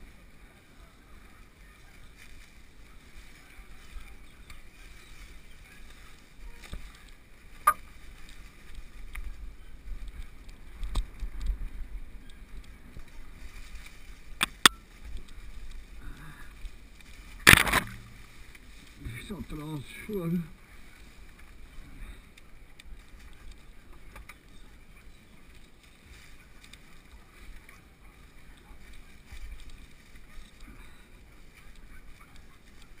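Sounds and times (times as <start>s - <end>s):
bike tyres rumbling on dirt: 0.0s - 33.0s
bike knocking and rattling: 17.2s - 18.7s.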